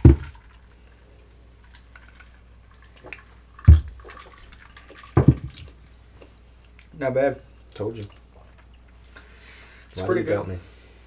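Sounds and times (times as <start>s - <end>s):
glass knocking on bar top: 5.2s - 5.6s
quiet sipping: 5.8s - 10.0s.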